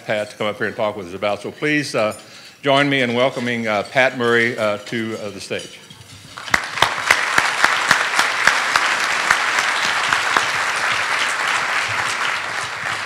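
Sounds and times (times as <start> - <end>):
audience applauding: 6.3 - 13.0
single claps close to microphone: 6.4 - 13.0.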